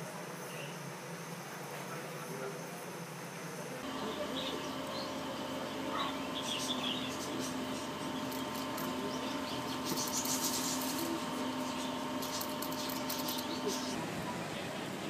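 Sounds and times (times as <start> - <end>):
steady hum: 3.0 - 15.0.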